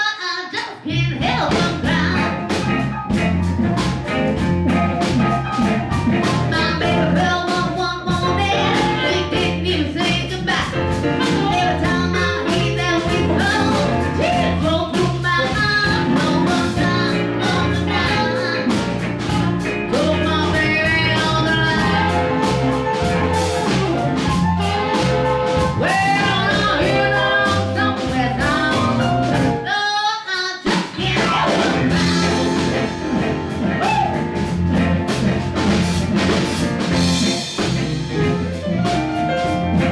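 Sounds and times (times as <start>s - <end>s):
woman singing: 0.0s - 2.4s, 6.5s - 22.7s, 25.8s - 32.9s
bass: 0.0s - 39.9s
drum kit: 0.9s - 29.7s, 30.4s - 39.9s
electric guitar: 1.2s - 29.7s, 31.0s - 39.9s
blues harmonica: 1.9s - 29.5s.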